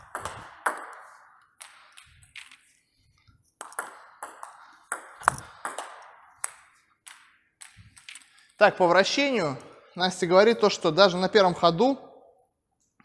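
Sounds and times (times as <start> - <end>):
table tennis ball pocks: 0.0 - 2.6, 3.6 - 8.4.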